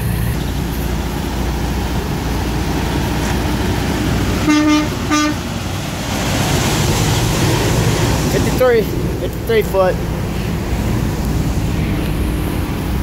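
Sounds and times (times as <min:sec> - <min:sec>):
diesel truck engine running: 0:00.0 - 0:13.0
truck horn toots: 0:04.4 - 0:05.5.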